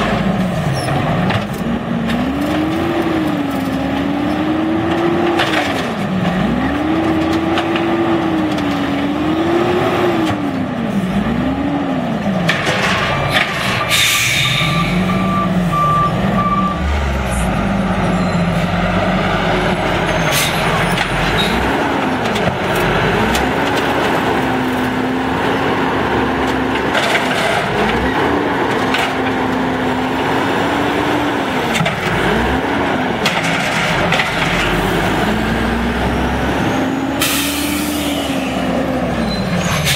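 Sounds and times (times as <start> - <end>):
garbage truck engine revving: 0.0 - 39.9
air brake hiss: 13.6 - 15.0
beeps: 14.4 - 18.6.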